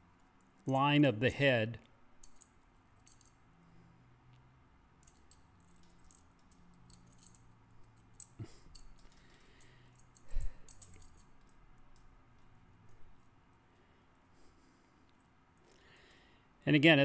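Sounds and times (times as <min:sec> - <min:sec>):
metal chain clicking and clinking: 0:02.2 - 0:03.8, 0:05.0 - 0:13.3.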